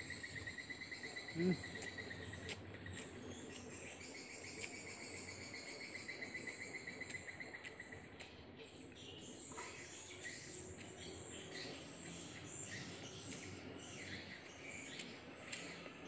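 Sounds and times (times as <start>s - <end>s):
insect trilling: 0.0s - 3.6s
person chewing food: 14.5s - 15.9s.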